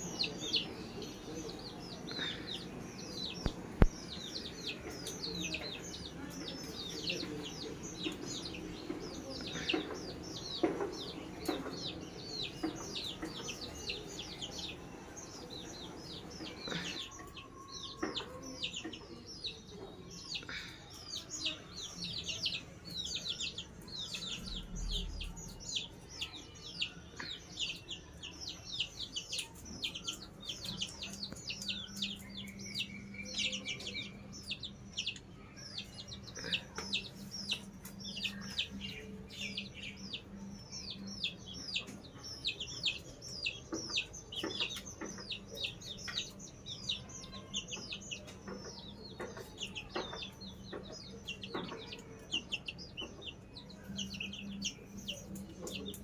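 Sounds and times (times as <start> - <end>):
chicks peeping: 0.0 - 56.0.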